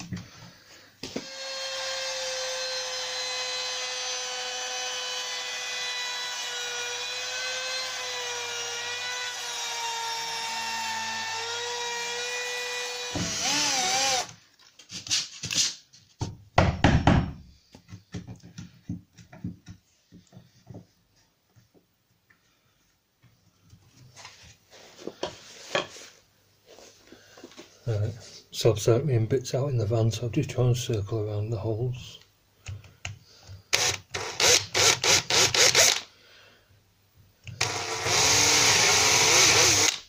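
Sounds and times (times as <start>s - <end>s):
router whining: 1.0s - 14.3s, 33.7s - 36.0s, 37.5s - 40.0s
chisel knocks and taps: 16.2s - 20.9s.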